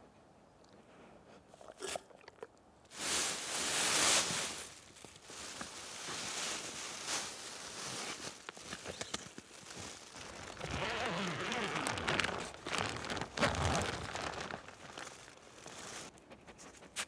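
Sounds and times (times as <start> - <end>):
tent fabric rustling: 2.9 - 16.2.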